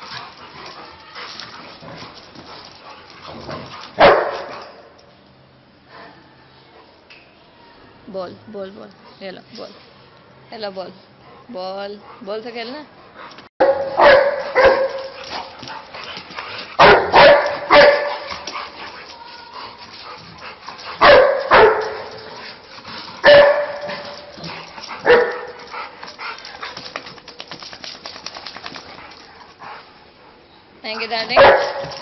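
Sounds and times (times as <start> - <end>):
dog barking: 4.0 - 4.7, 13.6 - 15.2, 16.8 - 18.4, 21.0 - 22.2, 23.2 - 24.2, 25.0 - 25.6, 31.3 - 32.0.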